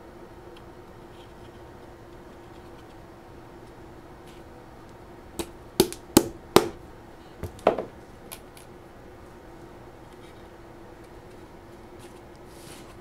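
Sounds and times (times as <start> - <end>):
knocks on wood: 7.4 - 7.9.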